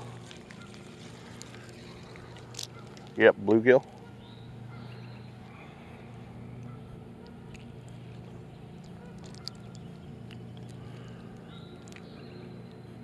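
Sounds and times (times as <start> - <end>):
distant motor hum: 0.0 - 13.0
small handling clicks: 0.2 - 3.2.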